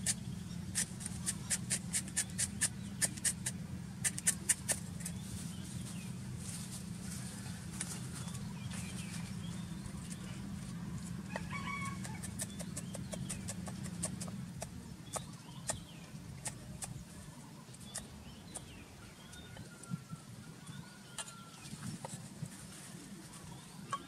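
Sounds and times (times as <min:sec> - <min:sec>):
steady low hum: 0:00.0 - 0:24.0
cleaver chopping on wooden board: 0:12.0 - 0:14.3.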